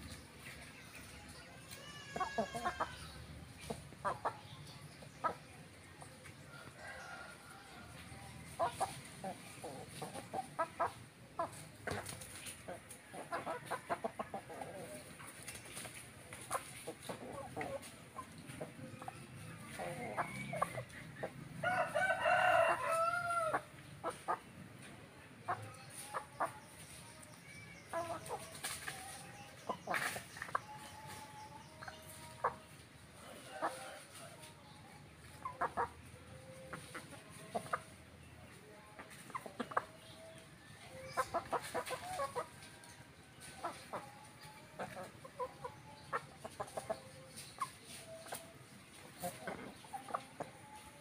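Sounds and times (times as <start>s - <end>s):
chickens clucking: 0.0s - 51.0s
rooster crowing: 21.6s - 23.6s.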